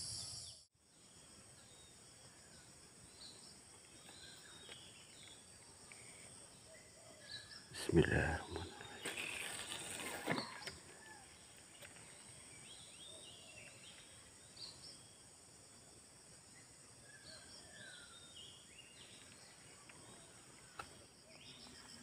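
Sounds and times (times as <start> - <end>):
high insect hum: 0.0 - 22.0.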